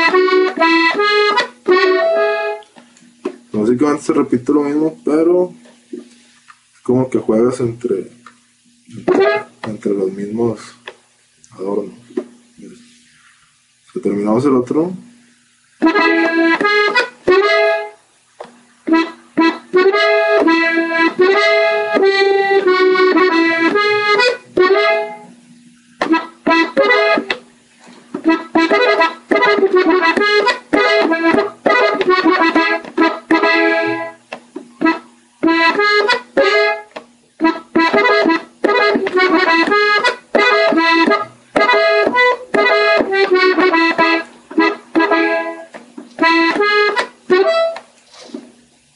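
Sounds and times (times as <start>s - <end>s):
button accordion melody: 0.0s - 2.7s, 9.0s - 9.6s, 15.8s - 18.0s, 18.8s - 25.4s, 26.0s - 27.4s, 28.2s - 34.2s, 34.8s - 47.9s.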